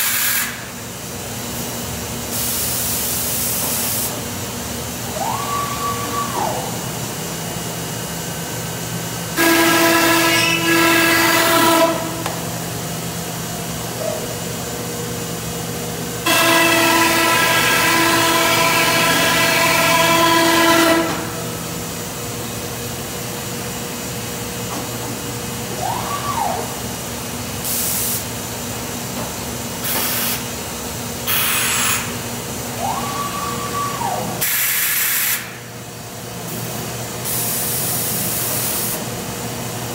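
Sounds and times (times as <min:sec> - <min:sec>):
compressed air hisses: 0:00.0 - 0:00.7, 0:34.4 - 0:35.6
machine hum: 0:04.1 - 0:27.6
rising and falling whines: 0:05.0 - 0:07.3, 0:32.7 - 0:34.4.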